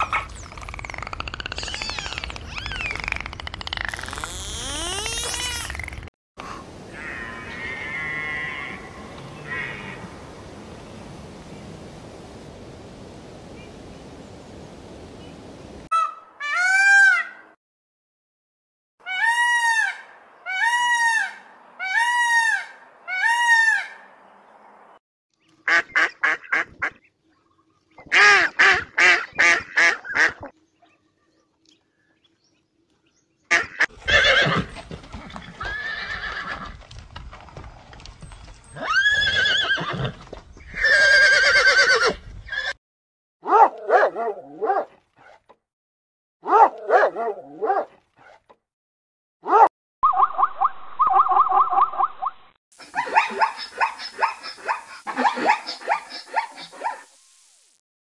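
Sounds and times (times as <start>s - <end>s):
ducks quacking: 25.7s - 27.0s
horses neighing: 33.8s - 36.8s, 38.7s - 42.8s.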